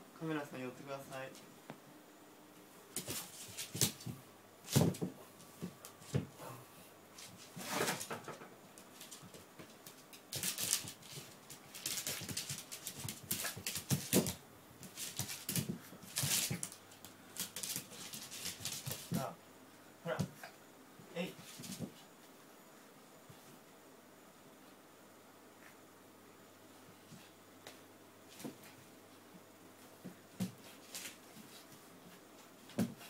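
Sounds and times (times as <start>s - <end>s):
dog scuffling on wooden floor: 2.9s - 6.3s, 7.2s - 19.3s, 21.3s - 22.1s, 30.0s - 33.0s.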